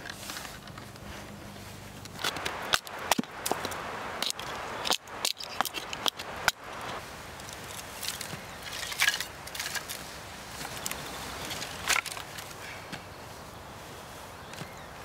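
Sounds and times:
wooden sticks clattering: 0:00.0 - 0:13.5
wood cracking and snapping: 0:02.1 - 0:12.6.

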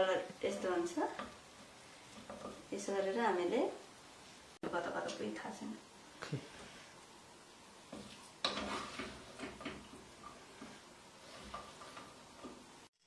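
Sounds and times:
spoon scraping metal pot: 0:08.4 - 0:12.6.

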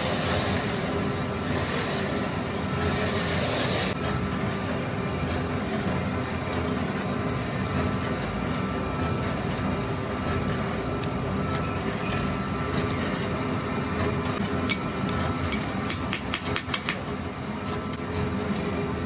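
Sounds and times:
foundry machinery drone: 0:00.0 - 0:19.0.

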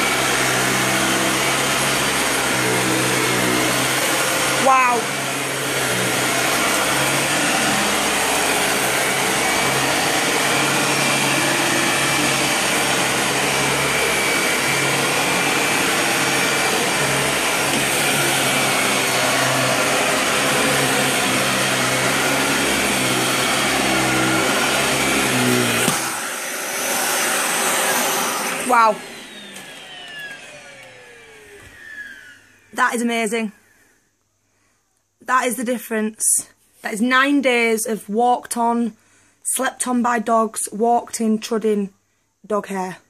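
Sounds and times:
vacuum cleaner on carpet: 0:00.0 - 0:33.4.

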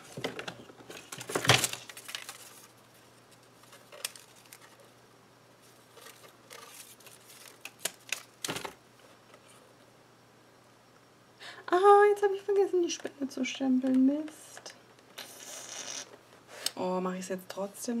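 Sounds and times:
paper rustling and crinkling: 0:00.0 - 0:04.9, 0:05.6 - 0:08.8.

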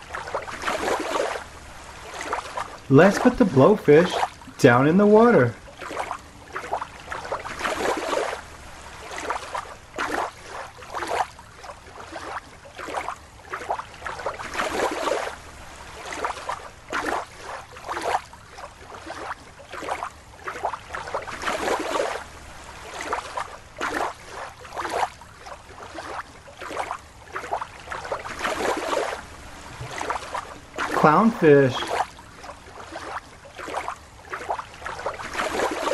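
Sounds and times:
water sloshing and splashing: 0:00.0 - 0:35.9.

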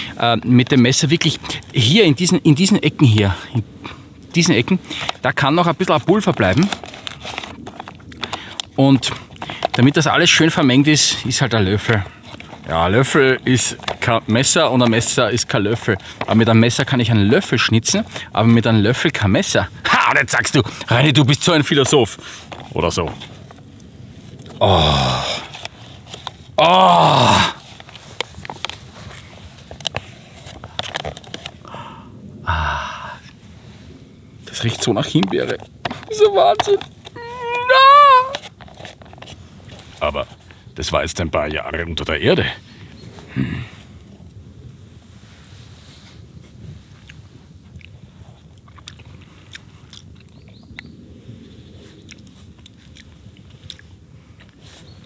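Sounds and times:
plastic pouch crinkling: 0:05.8 - 0:10.1, 0:11.0 - 0:16.5, 0:21.8 - 0:31.6, 0:35.1 - 0:40.5
man saying ooh: 0:24.6 - 0:25.4, 0:26.6 - 0:27.6, 0:32.4 - 0:33.3, 0:36.2 - 0:38.4
short vocal sound: 0:26.6 - 0:27.6
person chewing soft food: 0:47.0 - 0:50.9, 0:51.9 - 0:54.6.

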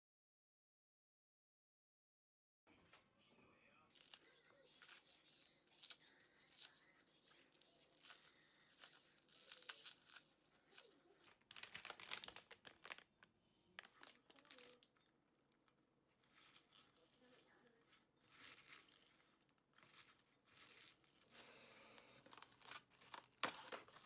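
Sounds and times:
cabbage leaves tearing: 0:03.9 - 0:13.0, 0:18.2 - 0:24.0.

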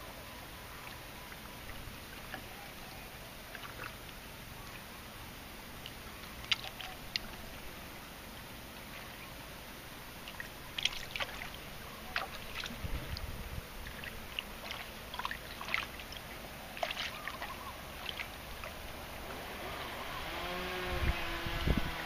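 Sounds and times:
pond water sloshing: 0:00.0 - 0:22.0
water splashes and plops: 0:00.7 - 0:02.6, 0:03.4 - 0:04.9, 0:05.7 - 0:07.8, 0:08.8 - 0:19.3.

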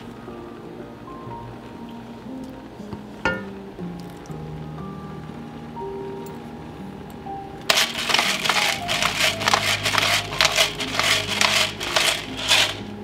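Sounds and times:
soft background music: 0:00.0 - 0:13.0
pepper mill grinding: 0:07.6 - 0:13.0.

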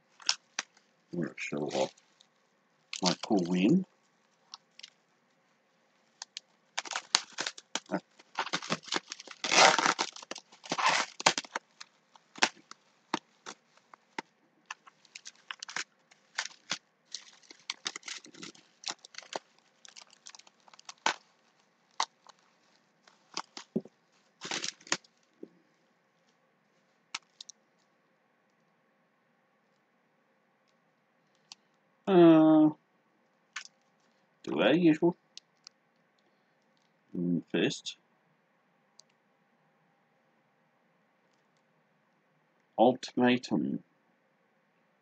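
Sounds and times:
bubble wrap crinkling: 0:00.1 - 0:00.9, 0:01.6 - 0:05.1, 0:05.9 - 0:25.4, 0:26.8 - 0:27.9.

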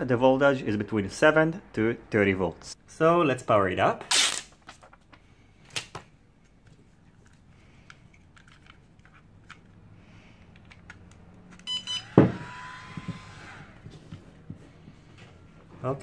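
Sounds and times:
charger beeping: 0:11.6 - 0:12.8.

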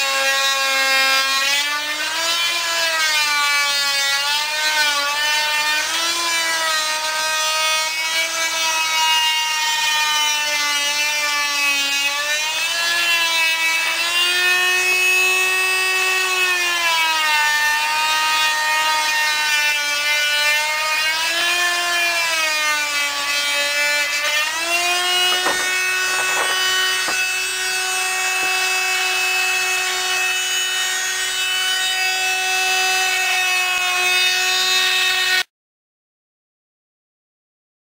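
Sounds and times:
electric saw cutting wood: 0:00.0 - 0:35.5
knocks: 0:25.2 - 0:27.3.

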